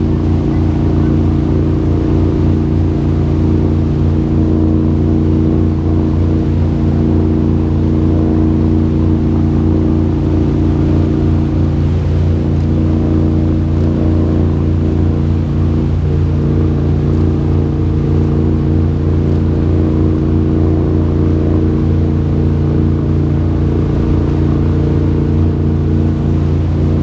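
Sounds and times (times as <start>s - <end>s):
boat engine droning: 0.0s - 27.0s.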